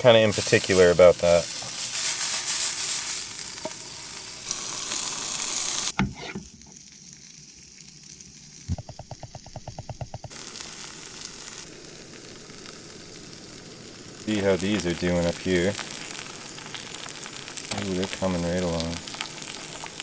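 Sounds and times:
food sizzling in a frying pan: 0.0 - 9.6, 10.2 - 20.0
knock: 8.7 - 10.3.

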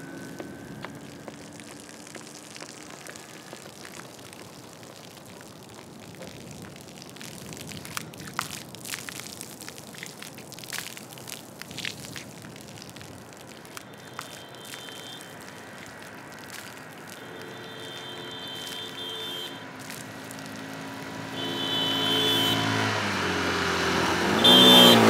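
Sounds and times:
crackles and sharp clicks: 0.0 - 19.0.

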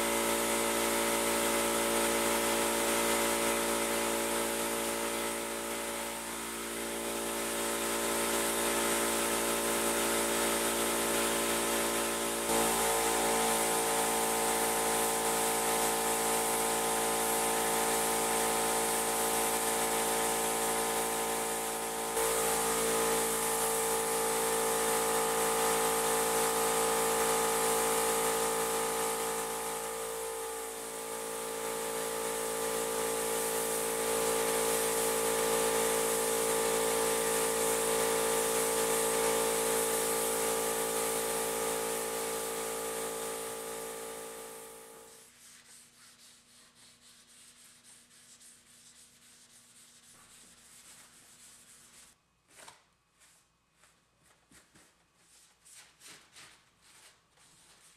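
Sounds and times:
spray gun hissing: 0.2 - 45.2
machine hum: 19.1 - 45.2
pad rubbing on helmet: 45.0 - 57.9.

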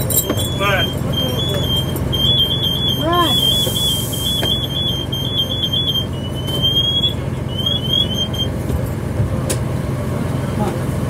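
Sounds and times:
electronic siren tone: 0.0 - 8.6
fire engines rumbling: 0.0 - 11.0.

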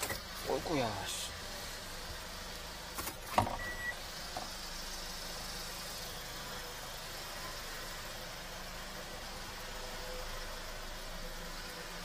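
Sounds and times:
car engine idling: 0.0 - 12.0
short beep: 3.6 - 4.0.

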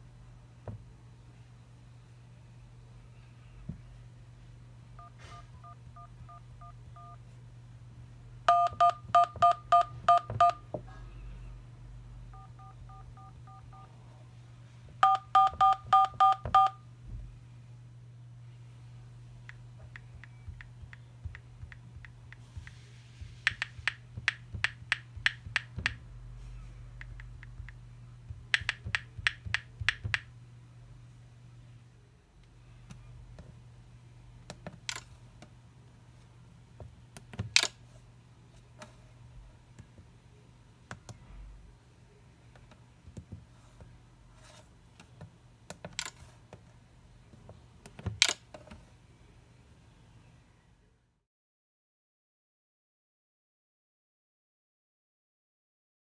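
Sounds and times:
steady low hum: 0.0 - 51.2
phone keyboard clicks: 23.5 - 26.0, 28.5 - 30.3.

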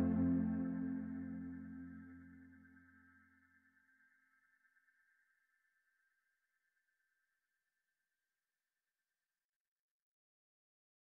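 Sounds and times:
held high music note: 0.0 - 2.0.

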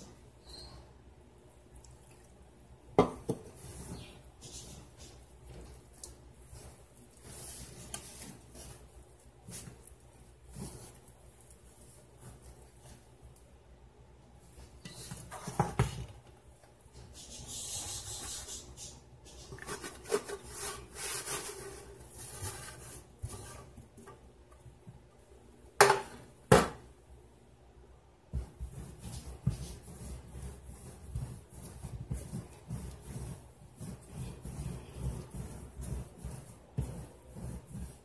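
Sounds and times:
hands squeezing dough in bowl: 1.5 - 24.0, 28.3 - 38.0
dough thumping on counter: 3.0 - 3.5, 25.8 - 26.8.

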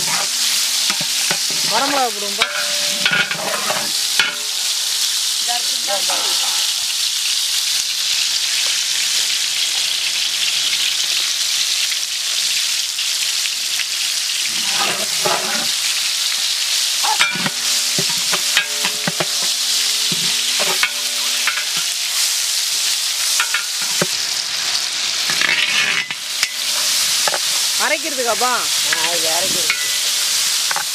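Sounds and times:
metal ladle scraping a pot: 0.0 - 4.5, 14.4 - 16.4, 17.1 - 22.4, 23.2 - 27.8, 28.9 - 30.9
oil sizzling in a pot: 0.0 - 30.9.

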